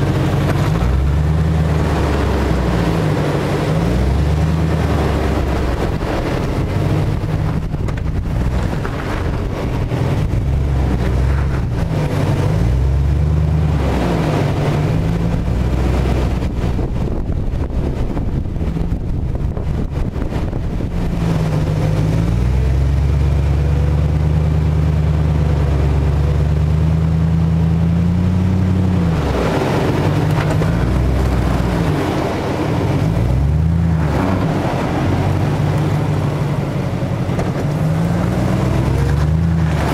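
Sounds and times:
engine revving under load: 0:00.0 - 0:39.9.

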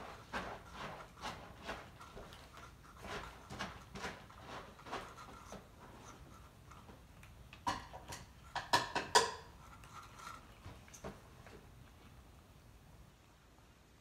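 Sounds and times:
cats crunching food: 0:00.0 - 0:12.7
clinks of food bowls: 0:07.6 - 0:09.5.

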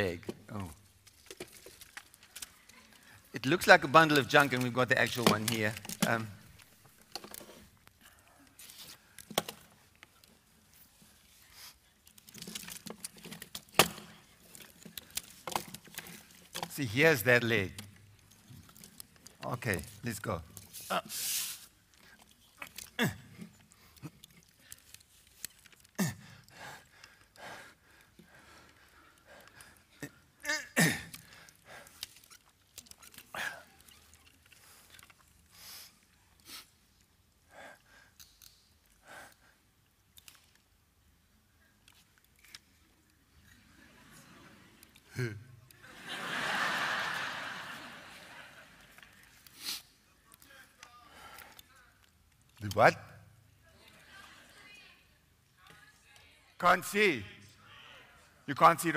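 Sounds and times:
puppet parts knocking and clicking: 0:04.3 - 0:07.6, 0:09.2 - 0:10.3, 0:12.0 - 0:20.7.

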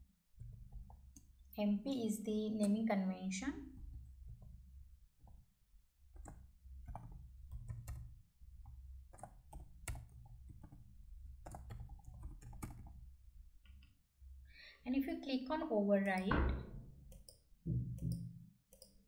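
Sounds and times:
keyboard typing: 0:03.7 - 0:04.6, 0:06.1 - 0:13.0, 0:17.1 - 0:19.0.

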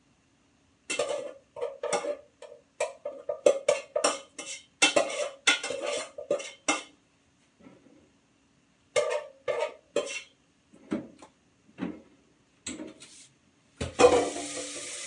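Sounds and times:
metal spoon scraping a metal pot: 0:00.9 - 0:06.9, 0:09.0 - 0:10.3.

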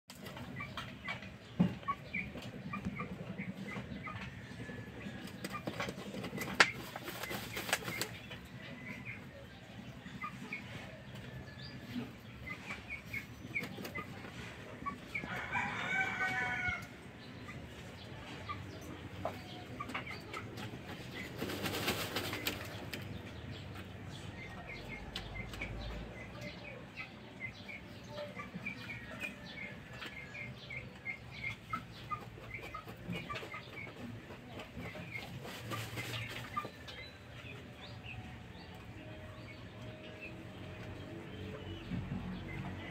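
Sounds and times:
wings flapping: 0:06.5 - 0:08.2, 0:21.4 - 0:22.8
rooster crowing: 0:15.3 - 0:16.9.

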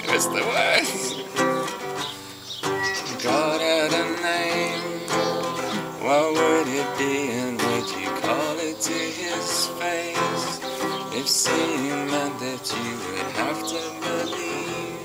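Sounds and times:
man singing: 0:00.0 - 0:01.2, 0:02.8 - 0:15.0
classical guitar strumming: 0:00.0 - 0:15.0.

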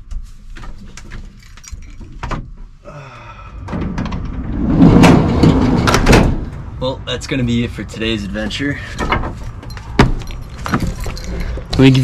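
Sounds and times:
sliding van door rolling open: 0:03.7 - 0:06.7.

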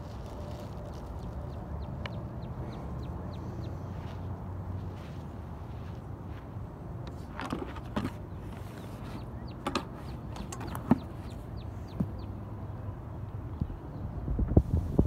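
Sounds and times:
low wind rumble: 0:00.0 - 0:15.0
bird chirping: 0:00.3 - 0:04.2, 0:08.0 - 0:12.6.

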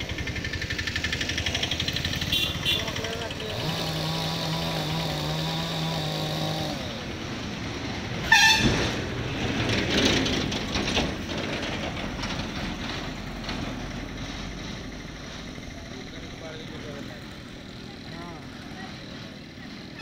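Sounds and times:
nearby engine running: 0:00.0 - 0:20.0
vehicles passing: 0:00.0 - 0:20.0
vehicle horn beep: 0:02.2 - 0:03.0, 0:08.2 - 0:08.8.

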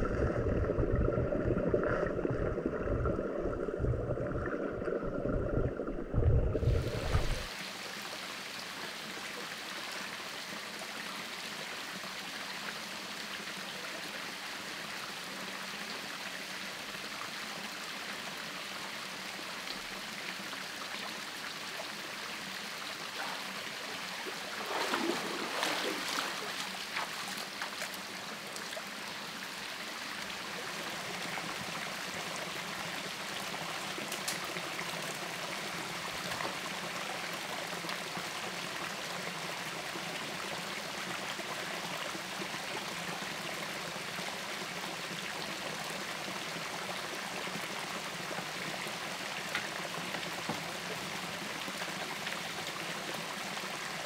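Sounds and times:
waterfall and stream running: 0:06.6 - 0:54.0
splashes of wading: 0:24.2 - 0:28.0.

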